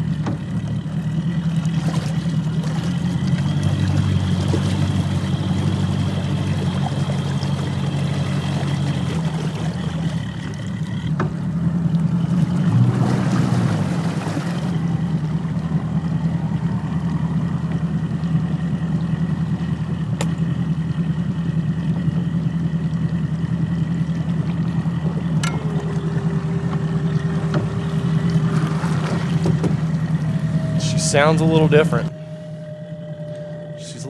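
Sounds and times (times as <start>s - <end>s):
outboard motor idling: 0.0s - 34.0s
electric motor whine: 24.8s - 34.0s.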